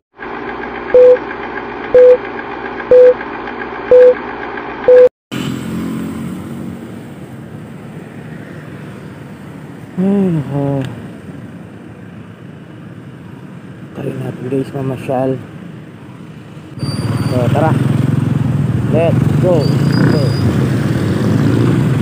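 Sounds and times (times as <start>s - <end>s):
countdown beeps: 1.0s - 1.2s, 2.0s - 2.2s, 2.9s - 3.2s, 3.9s - 4.2s, 4.9s - 5.1s
motor scooter riding noise: 5.4s - 11.1s, 16.8s - 22.0s.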